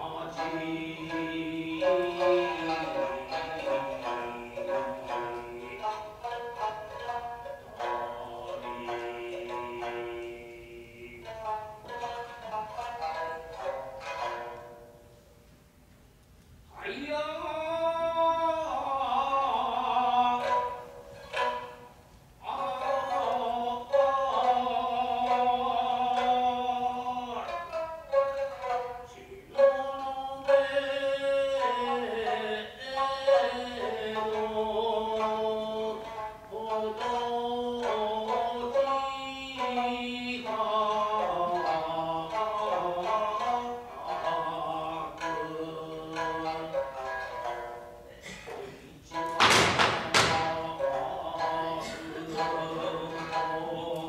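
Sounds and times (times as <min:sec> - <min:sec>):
person chanting sung lines: 0:00.0 - 0:11.6, 0:22.4 - 0:54.0
plucked shamisen notes: 0:00.0 - 0:15.9, 0:16.8 - 0:54.0.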